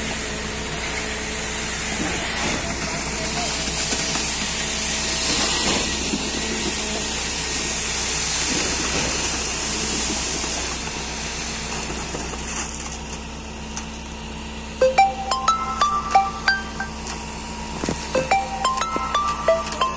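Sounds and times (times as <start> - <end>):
concrete pump hissing rush: 0.0 - 12.6
engine hum: 0.0 - 19.9.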